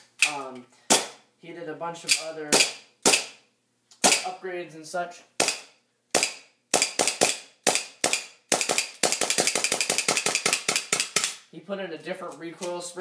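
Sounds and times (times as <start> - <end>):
airsoft pistol shots: 2.5 - 3.4, 5.4 - 11.4.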